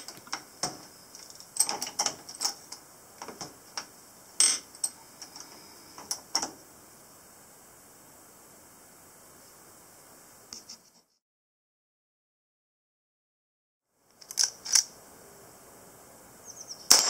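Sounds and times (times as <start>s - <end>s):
reloading press clicks and clunks: 0.0s - 3.6s.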